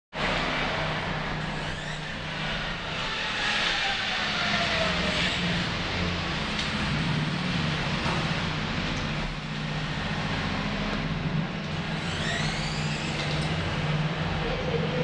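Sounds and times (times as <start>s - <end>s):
brief rising whine: 11.8s - 15.0s
toy car motors whirring: 12.0s - 13.4s.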